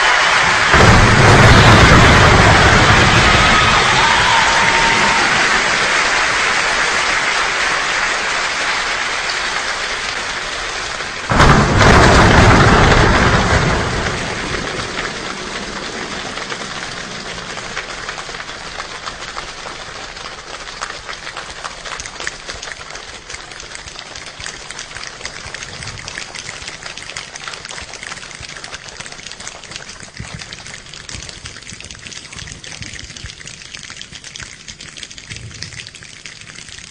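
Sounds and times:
thunder-like burst: 0:00.0 - 0:06.7, 0:11.2 - 0:19.0
crowd making rain patter: 0:00.0 - 0:36.9.

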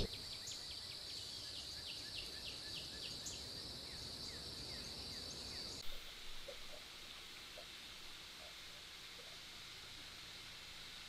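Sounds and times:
bird chirping: 0:00.0 - 0:06.9.

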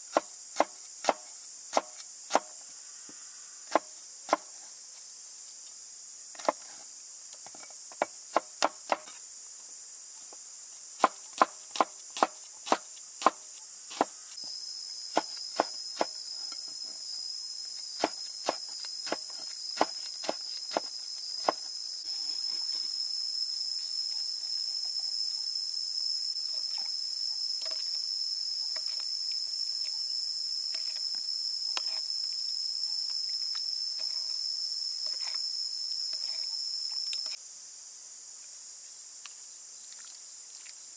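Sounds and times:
insect chorus: 0:00.0 - 0:40.9
cleaver chopping on wooden board: 0:00.1 - 0:02.5.

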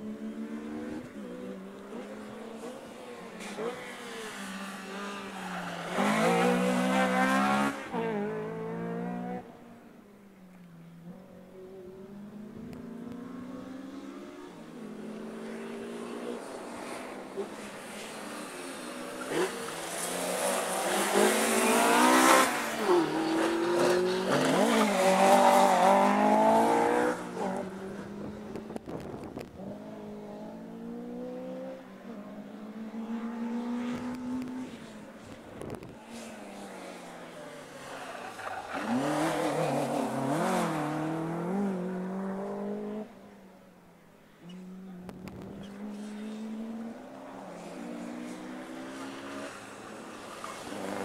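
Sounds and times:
second rally car engine: 0:00.0 - 0:09.6, 0:10.5 - 0:43.4, 0:44.3 - 0:51.0
rally car engine revving: 0:05.4 - 0:09.5, 0:19.1 - 0:31.8, 0:37.6 - 0:43.1.

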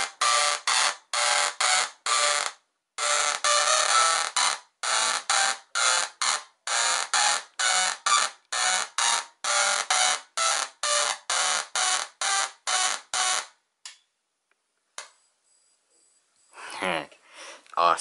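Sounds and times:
tesla coil spark buzzing: 0:00.0 - 0:13.5.

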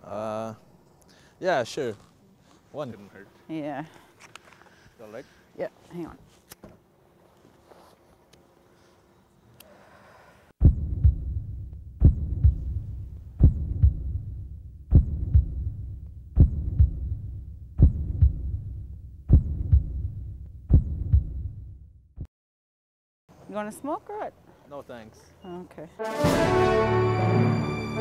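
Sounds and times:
heartbeat lub-dub: 0:10.6 - 0:22.3.

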